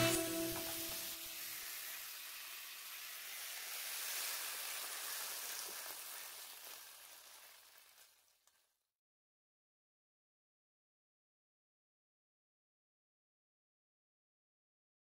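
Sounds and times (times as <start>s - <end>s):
beef sizzling: 0.0s - 8.7s.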